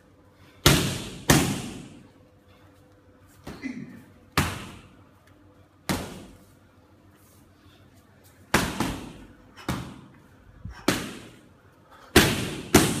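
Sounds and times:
gloved strikes slapping pads: 0.6 - 2.0, 8.5 - 10.1, 10.9 - 11.4, 12.2 - 13.0.

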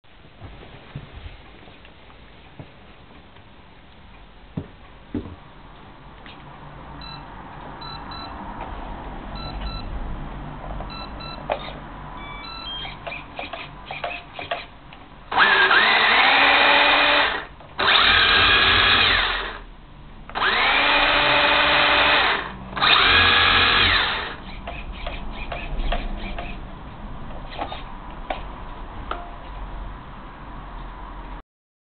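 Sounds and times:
faint short beeps: 12.2 - 13.0
electric motor whine spinning up: 15.3 - 19.6, 20.4 - 24.4.

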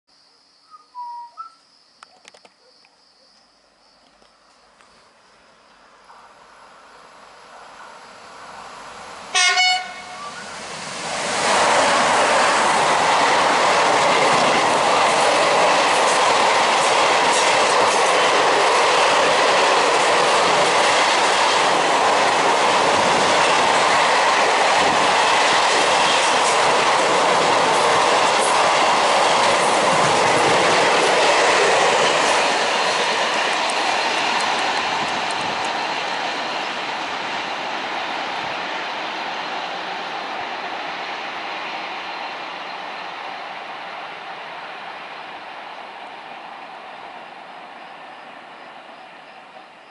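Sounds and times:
train horn blast: 9.3 - 10.5
train wheels clattering past: 9.3 - 39.8.

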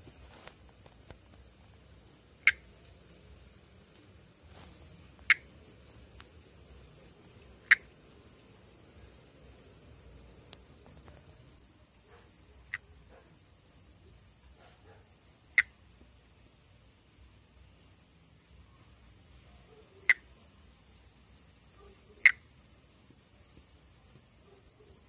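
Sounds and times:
tree frog call notes: 0.3 - 3.2, 4.5 - 11.6, 12.6 - 13.1, 15.4 - 15.8, 19.7 - 20.5, 21.8 - 22.8.

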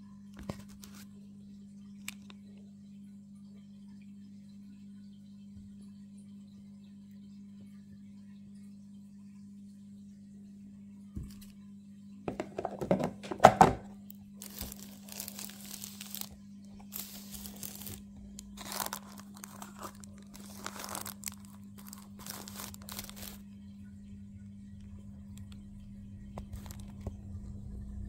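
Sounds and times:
steady low hum: 0.0 - 28.0
knock: 12.3 - 13.8
hands rustling and crinkling: 14.4 - 23.4, 26.4 - 27.2.

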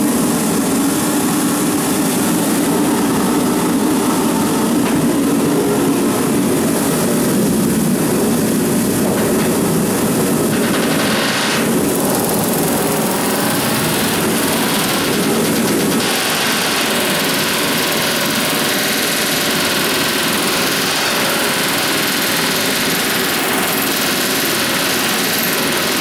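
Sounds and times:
pneumatic riveting hammer: 10.5 - 26.0.

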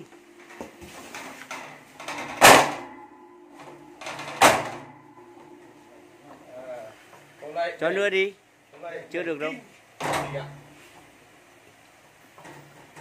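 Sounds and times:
thuds on metal door frame: 1.1 - 5.1.

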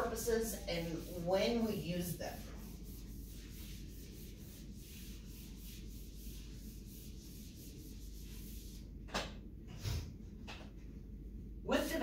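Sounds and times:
eraser scrubbing whiteboard: 0.0 - 8.9.

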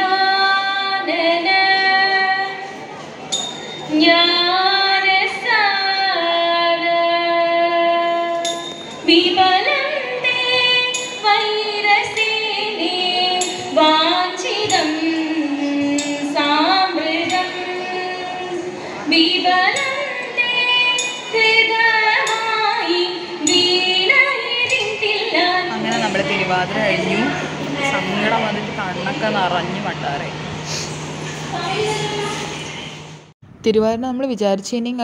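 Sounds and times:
women singing slow melody: 3.9 - 28.5
sharp percussive strikes: 25.6 - 29.5.

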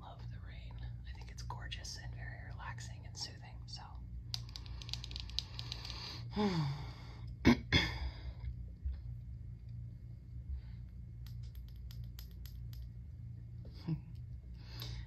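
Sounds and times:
sunglasses clicking and rattling: 4.4 - 5.9
person humming: 13.7 - 14.2.

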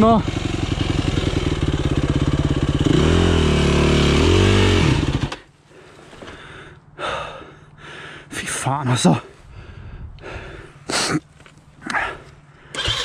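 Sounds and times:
dirt bike engine revving: 0.0 - 5.5, 12.7 - 13.0.

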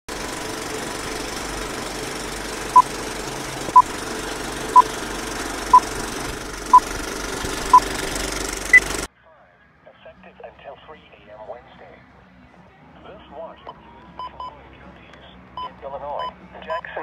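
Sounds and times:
film projector clatter: 0.1 - 9.1.

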